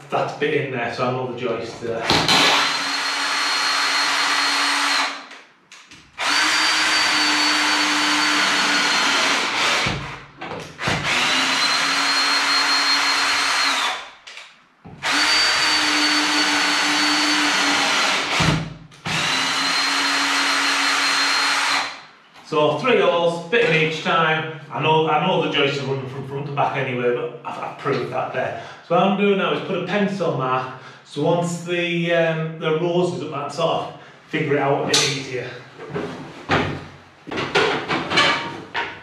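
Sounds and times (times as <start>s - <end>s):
cordless drill driving screw: 2.2s - 5.3s, 6.2s - 10.2s, 10.8s - 14.1s, 15.0s - 22.0s.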